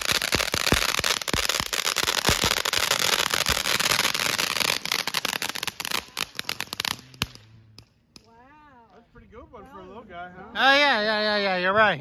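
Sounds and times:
firework fountain hissing: 0.0s - 7.6s
firework crackles and pops: 0.0s - 8.4s.

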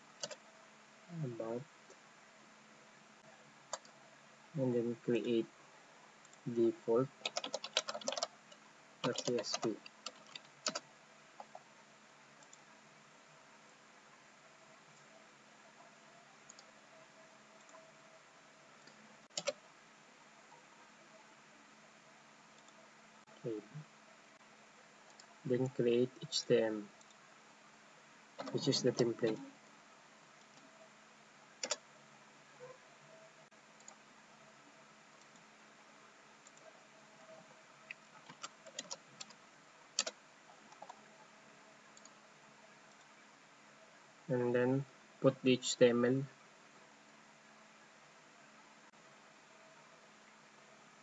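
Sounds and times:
faint room hiss: 0.0s - 51.0s
computer keyboard clicks: 0.2s - 0.4s, 7.2s - 8.3s, 9.0s - 10.8s, 18.8s - 19.6s, 40.0s - 41.0s
computer mouse clicks: 25.1s - 25.3s, 31.6s - 31.8s, 40.0s - 41.0s.

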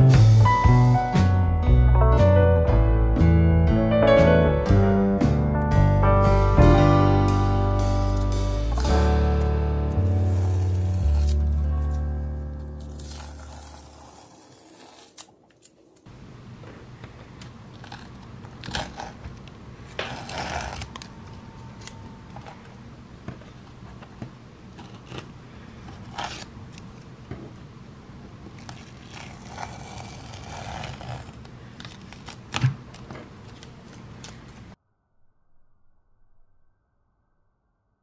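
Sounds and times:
canvas scraping on wooden table: 10.0s - 11.6s, 12.8s - 15.3s, 28.7s - 31.4s.

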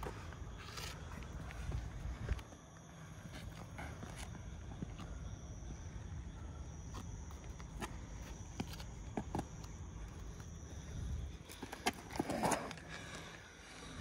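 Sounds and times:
soft footsteps and scuffs: 0.0s - 5.6s
high insect trill: 0.0s - 14.0s.

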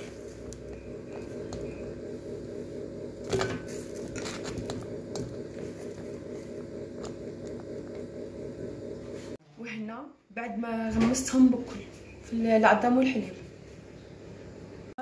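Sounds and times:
low pulsing hum: 0.0s - 9.4s.

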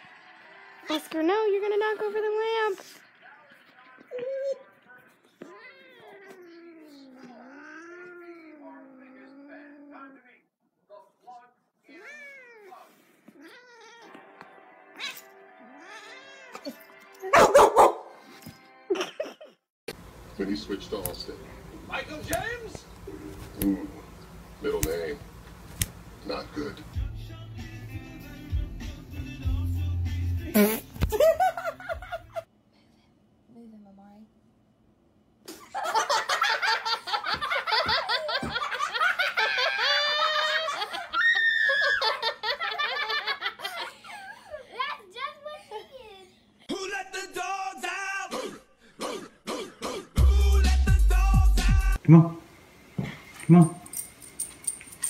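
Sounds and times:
cat meowing: 5.4s - 9.9s, 11.9s - 14.2s, 15.0s - 16.8s
background music: 14.1s - 19.2s, 26.3s - 31.7s, 49.5s - 52.0s
dog barking: 17.3s - 18.2s
children laughing: 18.9s - 19.6s, 31.1s - 32.5s, 35.5s - 46.5s
children squealing: 39.5s - 42.3s.

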